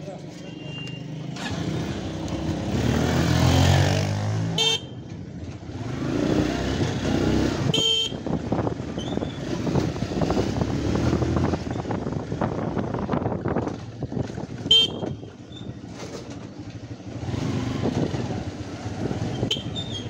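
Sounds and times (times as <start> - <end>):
horn beeps: 0.4 - 1.2, 19.4 - 20.0
motorcycle engine running: 1.2 - 20.0.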